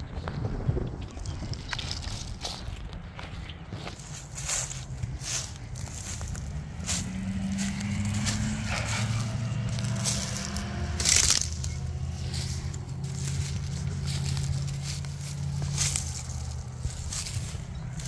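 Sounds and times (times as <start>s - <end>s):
footsteps crunching through dry leaves: 1.1s - 18.0s
twigs snapping underfoot: 1.3s - 18.0s
low steady hum: 4.4s - 18.0s.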